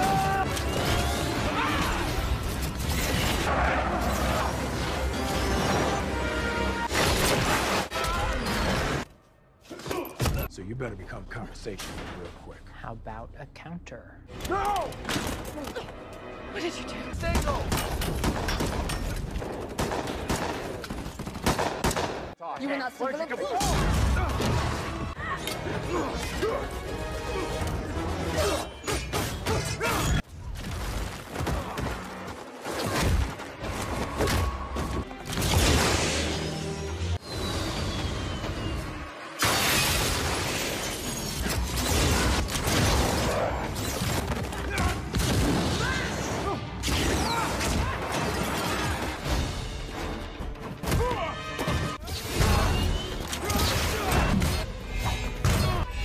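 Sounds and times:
orchestral score: 14.3s - 17.7s.

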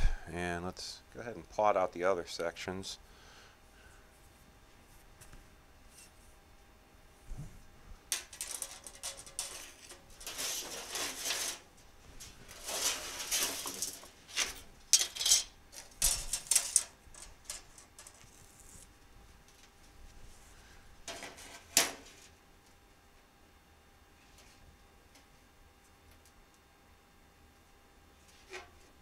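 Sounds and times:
sheet steel scraping on table: 8.6s - 11.7s, 12.5s - 14.6s.

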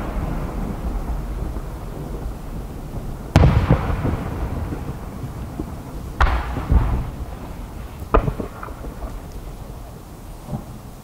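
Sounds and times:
rolling echo: 0.0s - 10.8s
firework shells booming: 0.0s - 10.9s
small firework pops: 3.4s - 4.9s, 5.6s - 7.2s, 7.8s - 10.8s.

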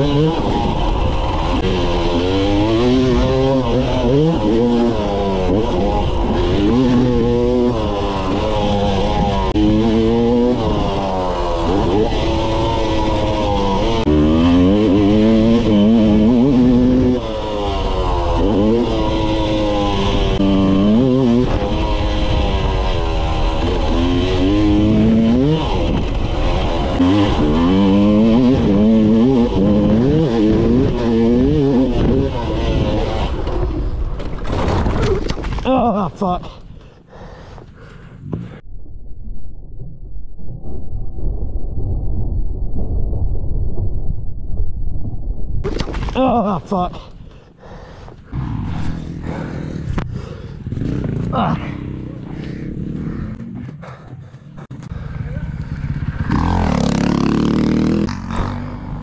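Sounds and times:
dirt bike engine revving: 0.0s - 34.2s, 47.6s - 59.0s.

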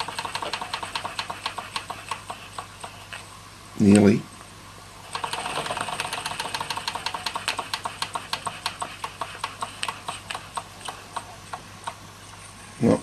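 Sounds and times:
toy steam engine chuffing: 0.0s - 3.1s, 5.1s - 11.6s.

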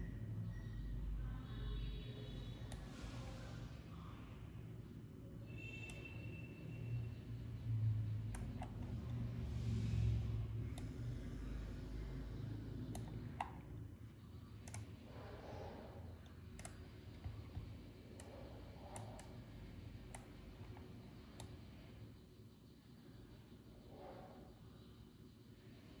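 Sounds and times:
low steady hum: 0.0s - 26.0s
computer mouse clicking: 8.2s - 9.3s, 10.6s - 11.5s, 12.8s - 13.8s, 14.6s - 15.3s, 16.2s - 21.7s.

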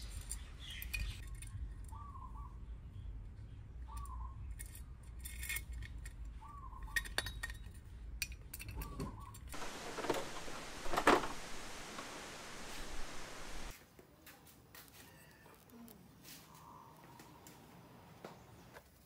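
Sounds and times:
metallic clinks of hex key and bolts: 4.5s - 9.5s
rough rustling and handling noise: 9.6s - 13.7s.

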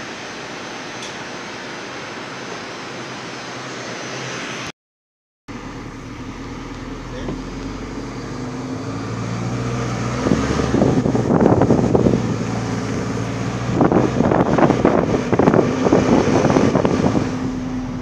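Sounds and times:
vehicle engine humming: 5.5s - 18.0s
wind buffeting microphone: 9.9s - 18.0s.

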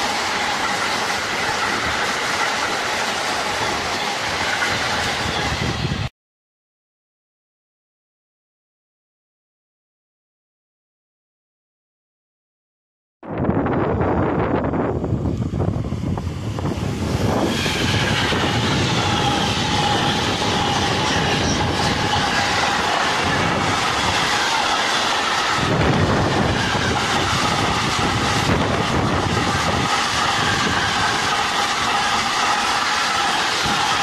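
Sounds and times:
high-pitched wheel squeal: 0.0s - 6.0s, 15.7s - 34.0s
freight train wheels rumbling on rails: 0.0s - 6.1s, 13.3s - 34.0s.

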